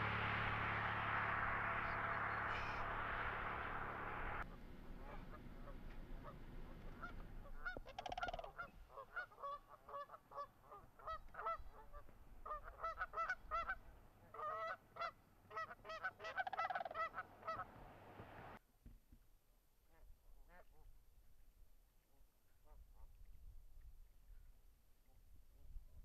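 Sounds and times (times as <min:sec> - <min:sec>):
geese honking: 0:00.0 - 0:17.8.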